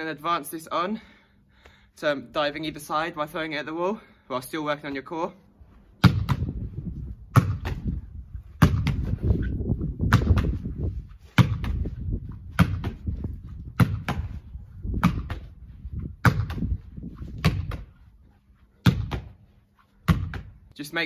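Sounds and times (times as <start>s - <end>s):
ball caught in gloves: 6.0s - 6.6s, 7.3s - 8.0s, 8.6s - 9.2s, 10.0s - 10.7s, 11.4s - 11.9s, 12.5s - 13.1s, 13.7s - 14.4s, 15.0s - 15.6s, 16.2s - 16.7s, 17.3s - 18.0s, 18.8s - 19.4s, 20.0s - 20.6s
ball smacking brick wall: 6.0s - 6.6s, 7.3s - 9.2s, 10.0s - 10.7s, 11.3s - 14.4s, 15.0s - 15.6s, 16.2s - 18.0s, 18.8s - 19.4s, 20.0s - 20.6s.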